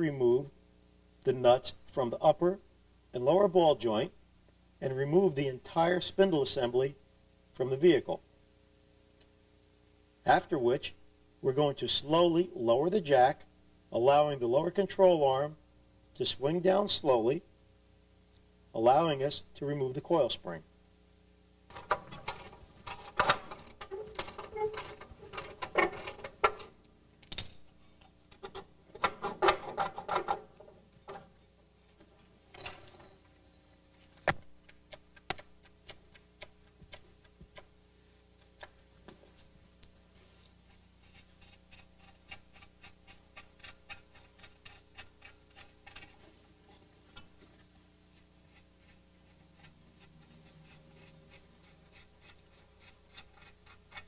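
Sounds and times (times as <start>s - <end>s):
metal tool clinks and rattles: 22.0s - 27.7s.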